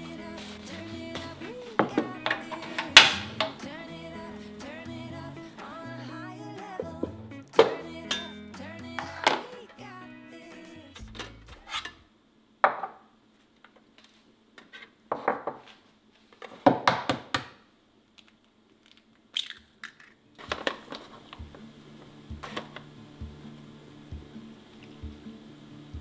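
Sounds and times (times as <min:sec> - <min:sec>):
soft music with steady beat: 0:00.0 - 0:11.6, 0:21.2 - 0:26.0
bowl and spoon clinking on tray: 0:07.6 - 0:08.4.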